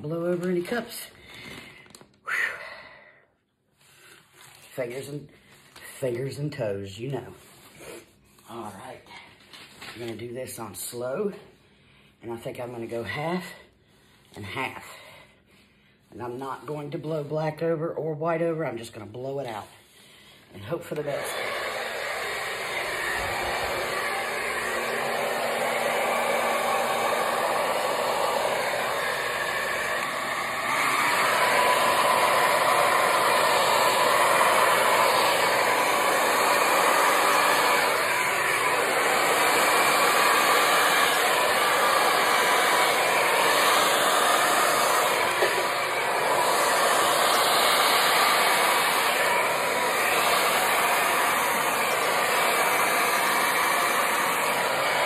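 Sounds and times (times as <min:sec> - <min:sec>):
hair dryer blowing: 0:00.0 - 0:02.0, 0:18.2 - 0:55.0.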